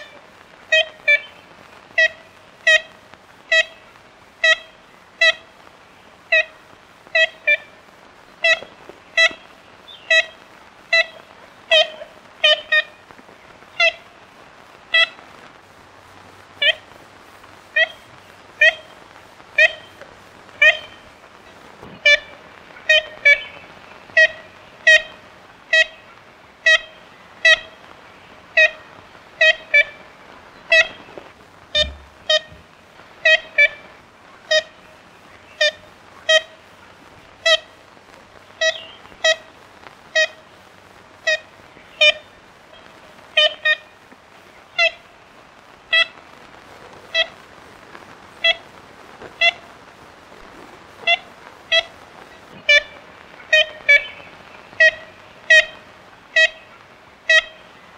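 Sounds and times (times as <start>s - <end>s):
woodpecker nasal calls: 0.0s - 14.3s, 14.9s - 15.3s, 16.5s - 17.0s, 17.6s - 46.2s, 46.8s - 47.4s, 48.3s - 57.9s
recording hiss: 0.0s - 57.9s.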